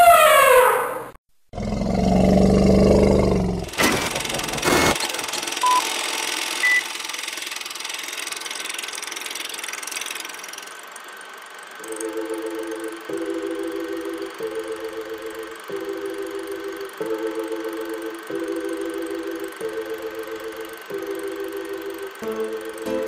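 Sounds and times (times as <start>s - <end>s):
deep low roar: 1.6s - 3.8s.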